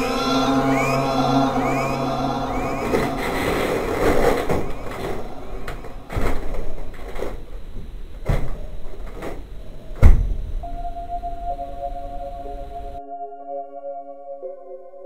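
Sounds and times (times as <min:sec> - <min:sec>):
loud hit: 0:00.0 - 0:06.9
noisy rumble: 0:00.0 - 0:10.6.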